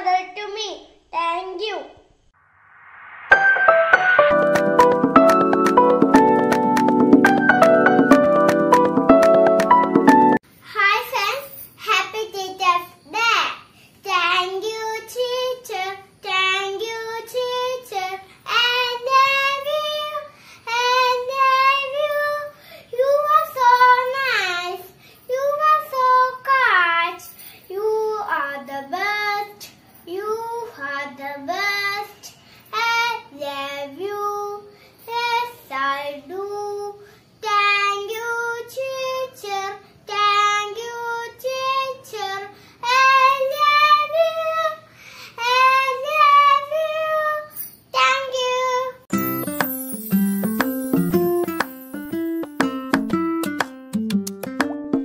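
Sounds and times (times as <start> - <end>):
young girl singing: 10.6 - 49.9.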